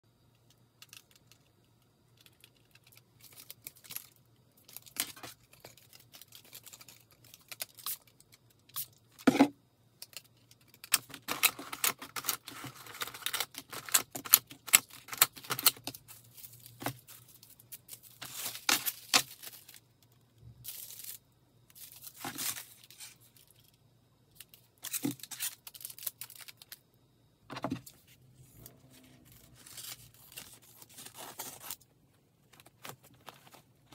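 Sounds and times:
faint low hum: 0.1s - 33.9s
wrapping paper crinkling: 2.2s - 8.9s, 10.6s - 19.8s, 24.8s - 26.8s, 29.0s - 31.8s, 32.4s - 33.9s.

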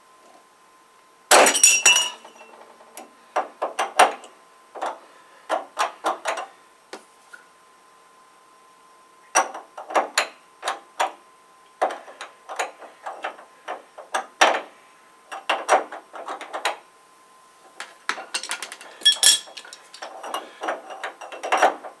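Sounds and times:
wrench knocking and clinking on metal: 17.8s - 20.4s.

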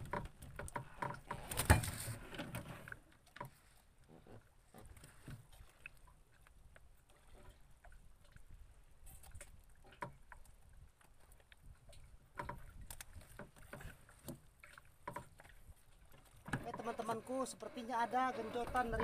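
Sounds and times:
thump in wooden boat: 0.0s - 2.7s, 16.4s - 17.2s.

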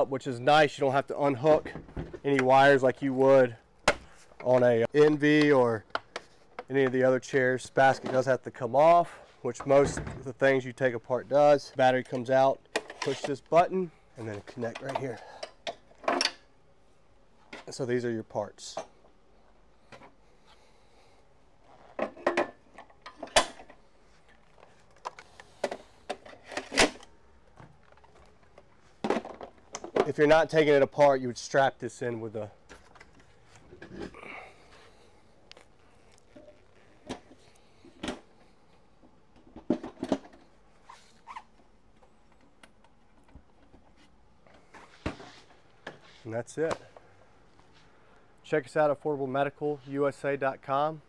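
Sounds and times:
clicks and knocks of parts handled: 12.0s - 13.6s, 14.2s - 16.5s, 21.9s - 30.2s.

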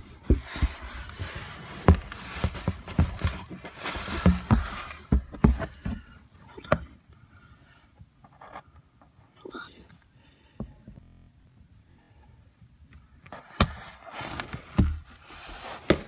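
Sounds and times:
dull thumps and knocks: 0.0s - 6.9s.

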